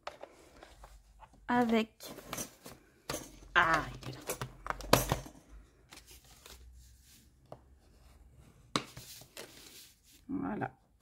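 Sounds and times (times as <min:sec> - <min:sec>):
paper rustling and scraping: 0:05.9 - 0:07.3, 0:08.7 - 0:10.2.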